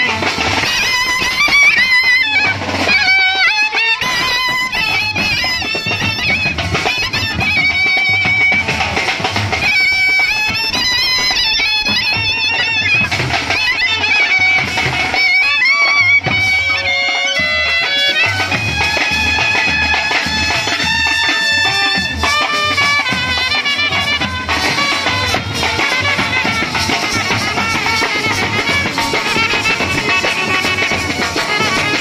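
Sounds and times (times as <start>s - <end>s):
reedy wind instrument melody: 0.0s - 32.0s
steady drum beat: 0.0s - 32.0s.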